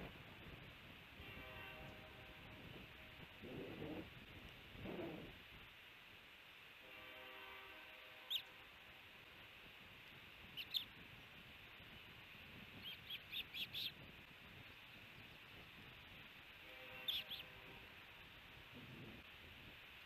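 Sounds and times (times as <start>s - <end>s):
light background hiss: 0.0s - 20.0s
osprey chirping: 10.5s - 10.9s, 12.8s - 14.0s, 17.0s - 17.5s.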